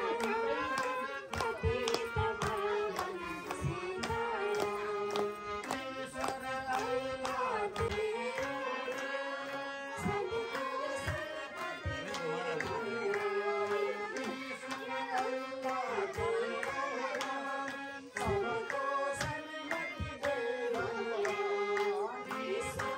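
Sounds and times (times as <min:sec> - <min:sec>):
harmonium drone: 0:00.0 - 0:22.9
woman singing lead: 0:00.0 - 0:22.9
women singing devotional song: 0:00.0 - 0:22.9.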